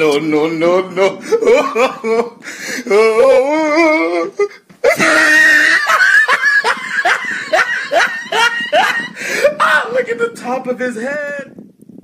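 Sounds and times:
man laughing hard: 0:01.0 - 0:09.9.

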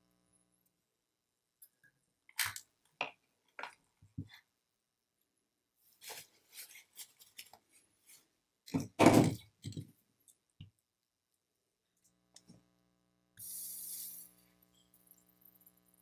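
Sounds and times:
hiss: 0:13.4 - 0:14.6.

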